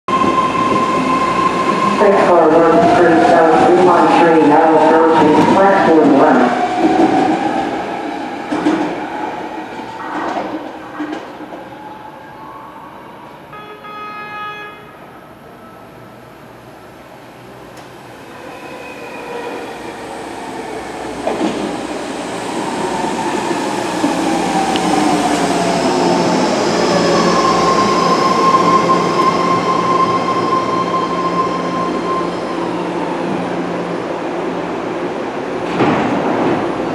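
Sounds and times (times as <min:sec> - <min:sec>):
train whine slowing: 0:14.4 - 0:34.1.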